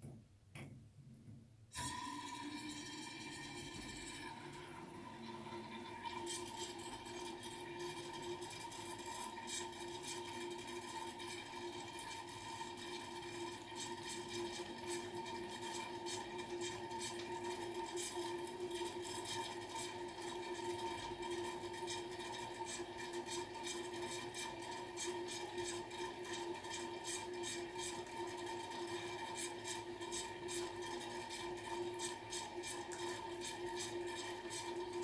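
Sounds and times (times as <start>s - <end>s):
water running from tap: 1.8s - 35.0s.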